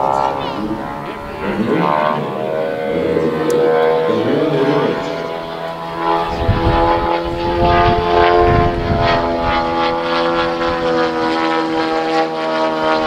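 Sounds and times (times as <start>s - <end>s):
propeller aircraft engine: 0.0s - 13.0s
wind rumbling on microphone: 4.7s - 11.9s.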